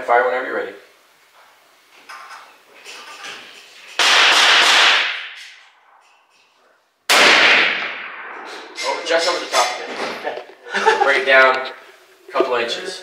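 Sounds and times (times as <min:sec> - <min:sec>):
rifle shots: 0:04.0 - 0:05.4, 0:07.1 - 0:08.7.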